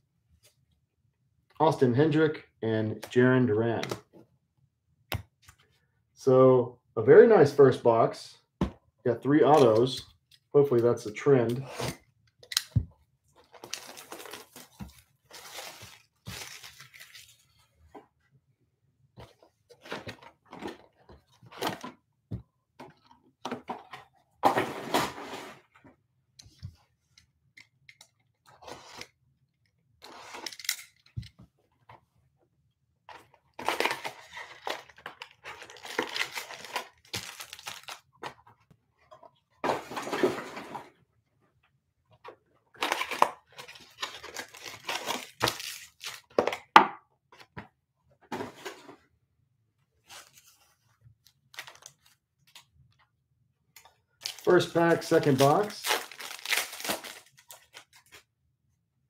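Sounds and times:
foil wrappers crinkling and tearing: 13.5 - 17.5, 33.6 - 38.1, 42.8 - 46.3, 51.5 - 52.0, 54.2 - 58.1.

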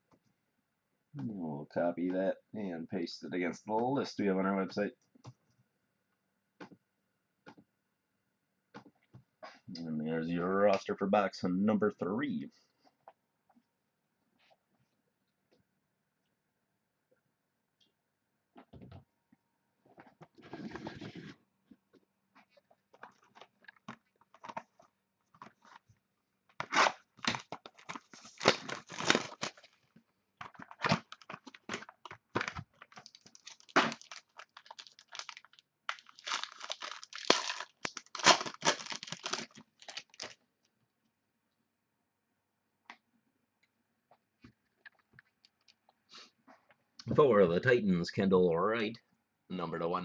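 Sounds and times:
plastic wrapping crinkling: 26.5 - 40.4.

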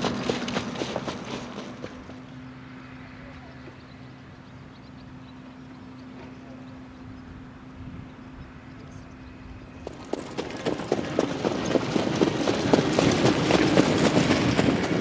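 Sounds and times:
trotting horse hoofbeats on dirt: 0.0 - 2.4, 9.7 - 15.0.

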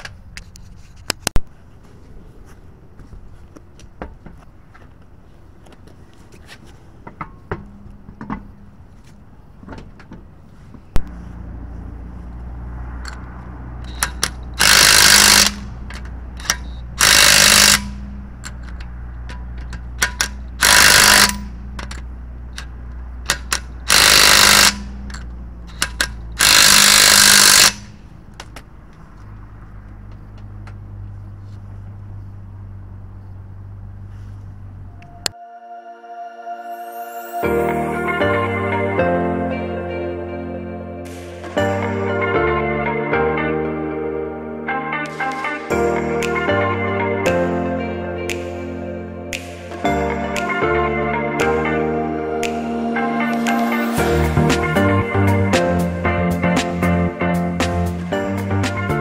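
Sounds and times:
impact wrench hammering: 13.8 - 28.5.

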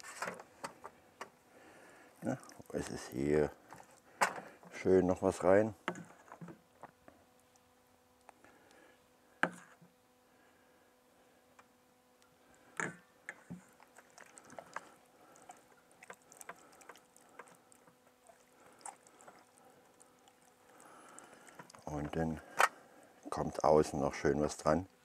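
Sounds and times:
hands squelching marinade into chicken: 13.6 - 23.9.

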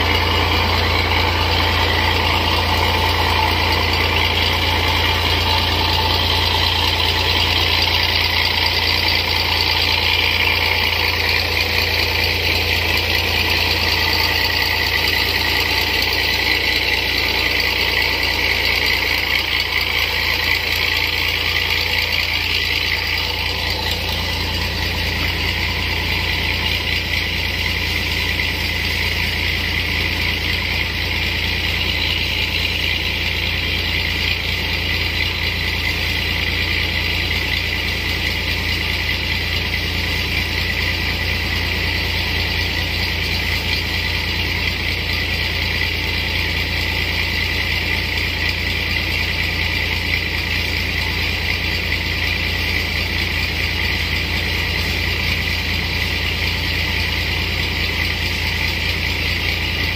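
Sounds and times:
power sprayer engine running: 0.0 - 59.9.

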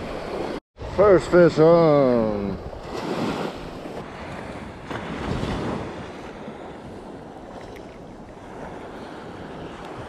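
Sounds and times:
surf washing up beach: 0.0 - 10.0
wind buffeting microphone: 2.3 - 10.0.

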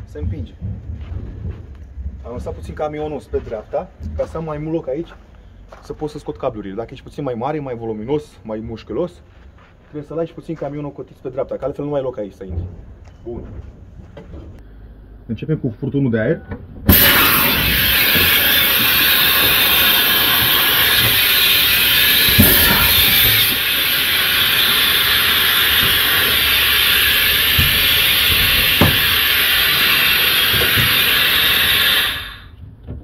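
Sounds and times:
compressed air hissing: 16.9 - 32.6.

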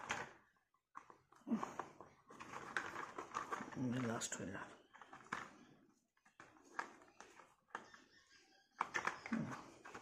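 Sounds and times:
plastic toy parts clicking: 8.8 - 10.0.

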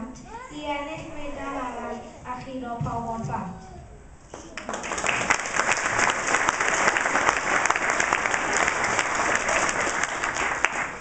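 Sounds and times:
crowd applauding: 4.4 - 11.0.

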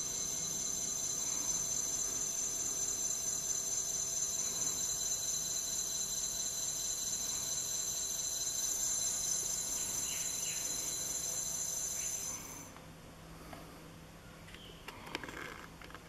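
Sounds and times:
hub motor high-pitched whine: 0.0 - 12.8.

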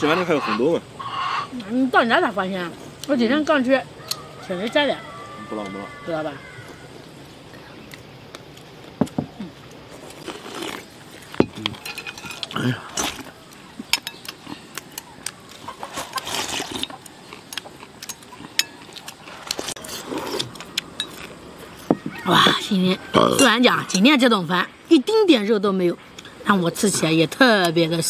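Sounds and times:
chopsticks clinking on bowls: 11.4 - 13.2, 16.7 - 19.7, 20.4 - 21.3, 23.3 - 24.3
slurping porridge: 15.9 - 16.9, 19.2 - 20.7.

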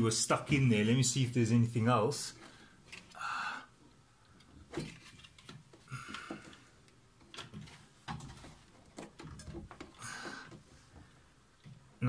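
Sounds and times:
plastic parts clicking: 4.4 - 10.6.

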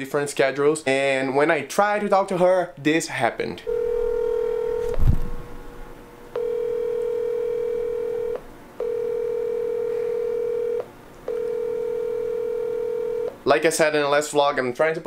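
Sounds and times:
phone ringback beeps: 3.7 - 5.0, 6.4 - 13.4.

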